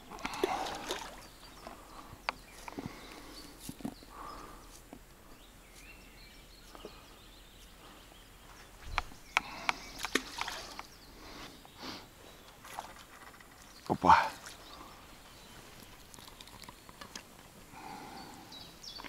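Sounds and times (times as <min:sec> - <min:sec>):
quiet outdoor hiss: 0:00.0 - 0:19.0
sharp clicks of fishing tackle: 0:09.3 - 0:10.9.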